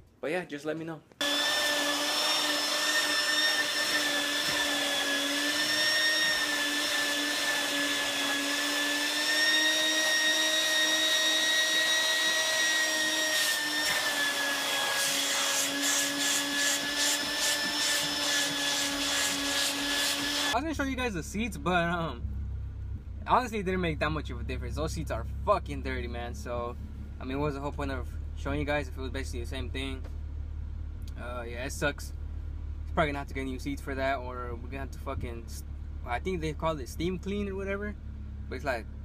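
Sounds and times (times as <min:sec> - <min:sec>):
vacuum cleaner running: 0:01.2 - 0:20.6.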